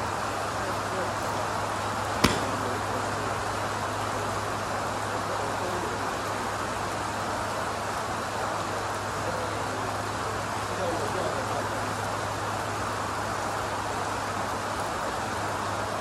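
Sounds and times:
golf club striking ball: 2.2s - 2.9s.

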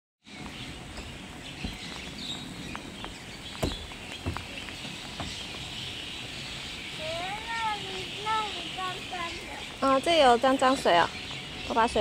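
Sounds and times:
birds chirping: 0.2s - 12.0s
outdoor hiss: 0.3s - 12.0s
child's footsteps on steps: 0.4s - 5.9s.

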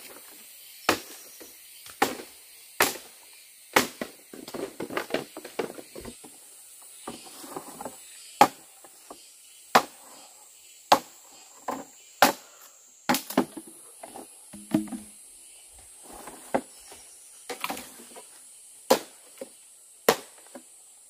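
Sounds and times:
wood chopping blows: 1.9s - 3.1s, 13.1s - 13.7s, 14.6s - 15.2s.

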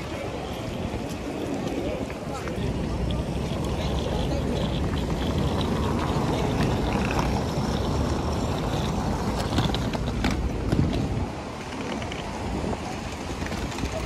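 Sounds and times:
suitcase wheels rolling over paving: 0.0s - 14.0s.

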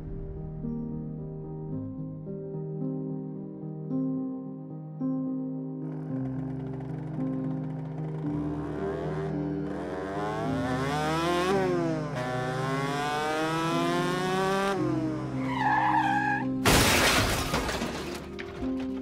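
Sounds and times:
motorcycle engine revving: 5.9s - 15.4s
tyre screech: 15.4s - 16.4s
motorcycle crashing: 16.6s - 19.0s
plastic and glass shattering: 16.6s - 19.0s.

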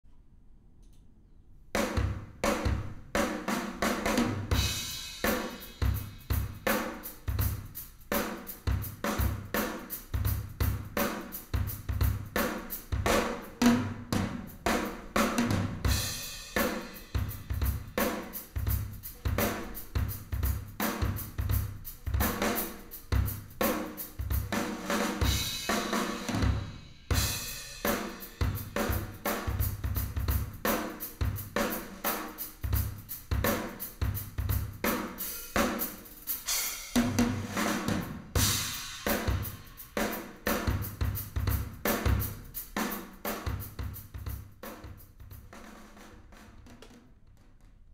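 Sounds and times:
drum kit groove: 1.8s - 47.9s
cymbal crashes: 35.1s - 40.2s.

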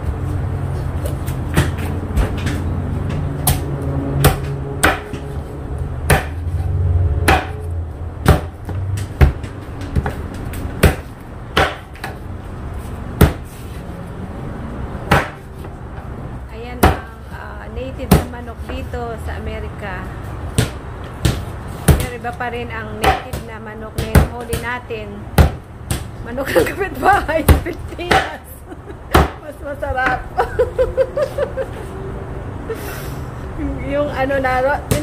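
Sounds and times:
low rumble: 2.0s - 9.2s.

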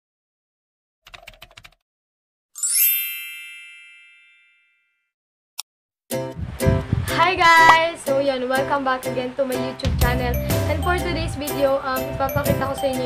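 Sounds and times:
bright chime: 2.6s - 4.9s.

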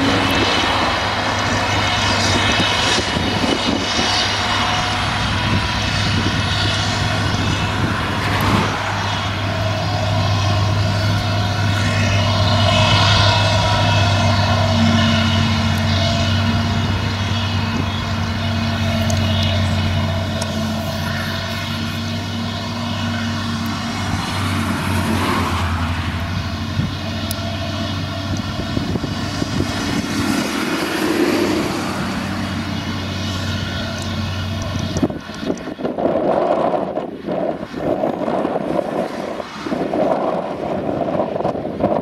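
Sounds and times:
forage harvester engine drone: 0.0s - 42.0s.

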